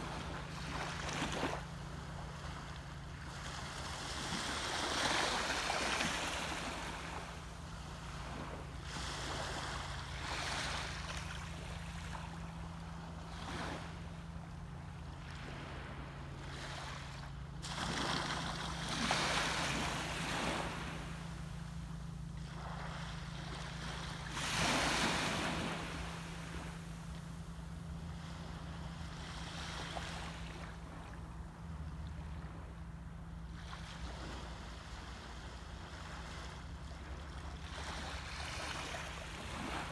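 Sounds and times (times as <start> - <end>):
small waves washing onto beach: 0.0 - 32.8, 33.5 - 39.9
steady low hum: 0.0 - 39.9.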